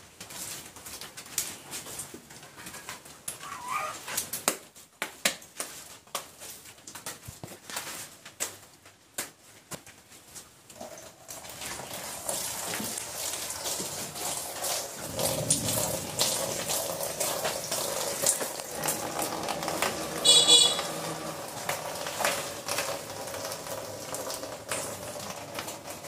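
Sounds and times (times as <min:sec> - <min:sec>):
cow urine splashing on concrete: 0:10.7 - 0:26.0.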